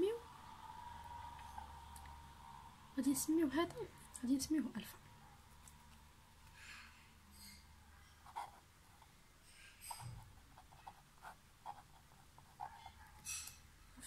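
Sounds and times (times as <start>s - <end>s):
pen scratching on paper: 8.2s - 9.1s, 9.8s - 13.5s.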